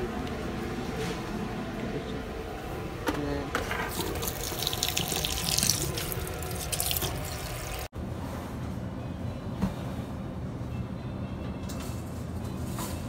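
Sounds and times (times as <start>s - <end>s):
tap water splashing in sink: 4.0s - 7.9s.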